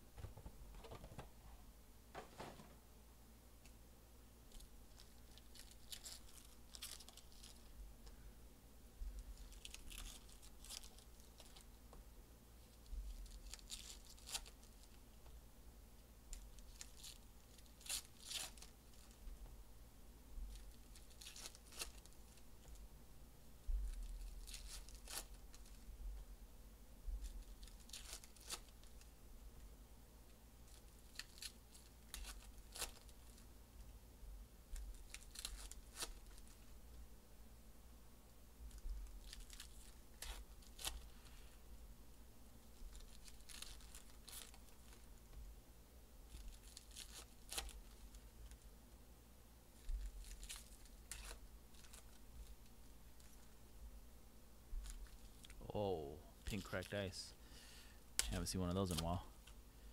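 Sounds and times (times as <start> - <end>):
cards rustling and snapping: 4.5 - 7.7, 9.2 - 11.6, 13.1 - 15.0, 16.3 - 19.2, 20.5 - 22.8, 23.9 - 25.8, 27.2 - 29.1, 30.7 - 33.4, 34.8 - 36.7, 38.7 - 41.3, 42.7 - 45.1, 46.3 - 48.6, 49.8 - 53.6, 58.2 - 59.6
foil packs tearing and crinkling: 4.9 - 7.6, 9.4 - 11.6, 13.2 - 14.9, 16.4 - 19.1, 20.6 - 22.2, 24.1 - 25.7, 27.3 - 29.0, 30.8 - 33.4, 34.9 - 36.6, 39.1 - 41.1, 42.8 - 45.0, 46.3 - 48.2, 49.8 - 52.2.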